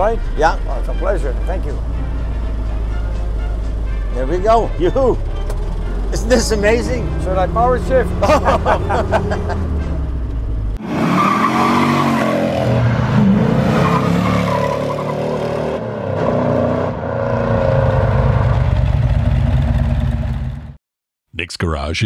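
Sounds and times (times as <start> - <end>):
jeep engine revving through gears: 5.2 - 16.9.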